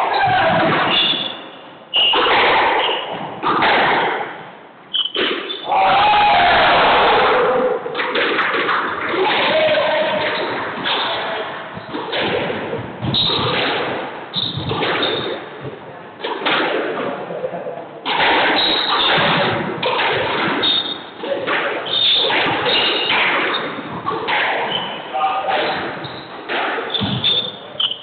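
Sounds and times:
squash ball smacks: 2.0 - 4.3, 7.9 - 17.2, 18.0 - 27.6
shoes squeaking on wooden floor: 24.7 - 28.0.

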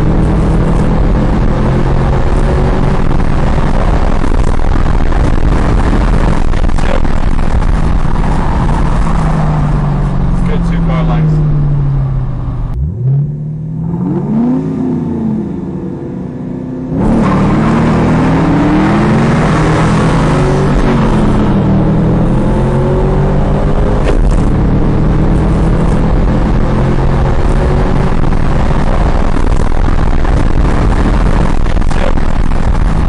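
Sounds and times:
car engine revving: 0.0 - 33.0
wind and road noise: 0.0 - 33.0.

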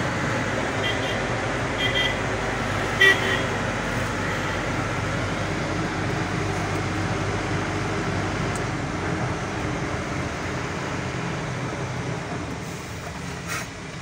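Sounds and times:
truck engine and road noise: 0.0 - 14.0
truck horn toot: 0.8 - 3.6.

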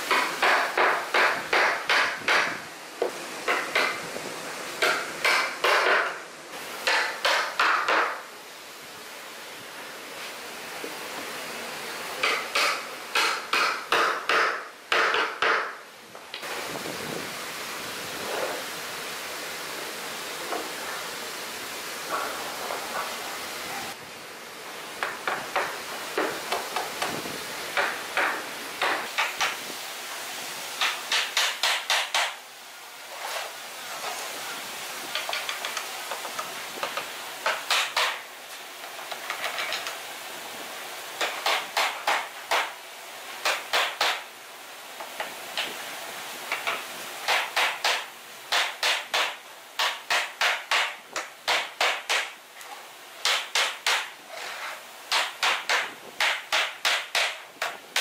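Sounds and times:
hammer striking wood: 0.1 - 4.0, 4.8 - 6.2, 6.8 - 8.2, 12.2 - 15.8, 25.0 - 27.2, 27.8 - 29.6, 30.8 - 32.4, 36.8 - 38.2, 41.2 - 42.7, 43.4 - 44.2, 46.5 - 52.4, 53.2 - 54.1, 55.1 - 58.0.

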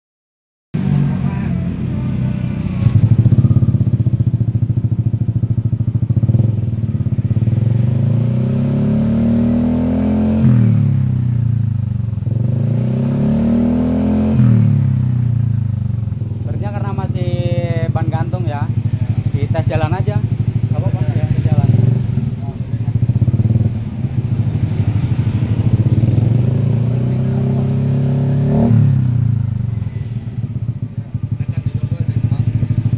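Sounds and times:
scooter engine revving: 0.8 - 16.2, 17.2 - 32.9.

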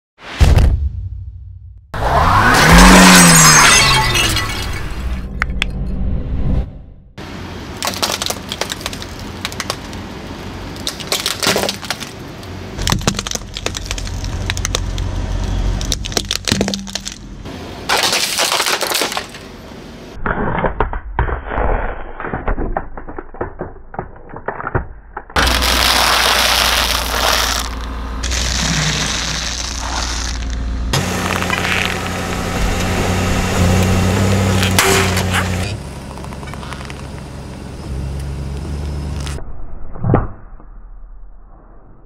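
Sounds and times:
objects cracking under car tyre: 7.8 - 19.5, 20.2 - 33.0, 33.8 - 37.7.

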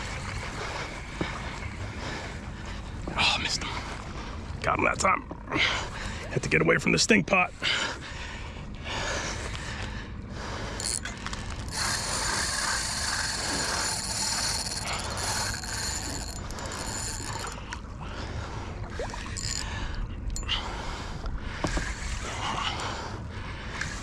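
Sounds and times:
fishing reel gears whirring: 10.4 - 17.9, 19.0 - 20.7.

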